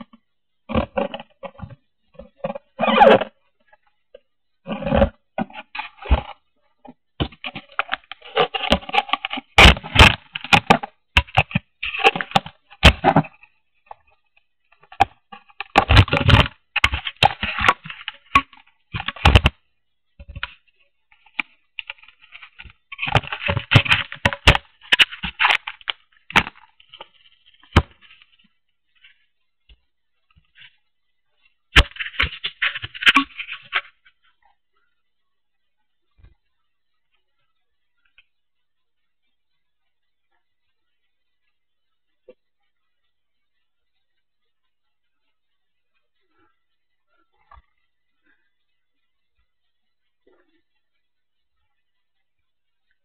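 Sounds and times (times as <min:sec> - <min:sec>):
recorder handling noise: 0:00.0 - 0:34.9
scraping and rustling: 0:04.6 - 0:19.6, 0:20.3 - 0:29.3, 0:31.7 - 0:34.4.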